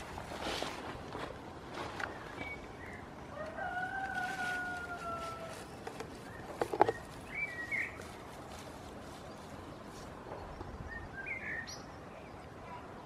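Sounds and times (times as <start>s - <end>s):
rooster crowing: 3.3s - 5.7s.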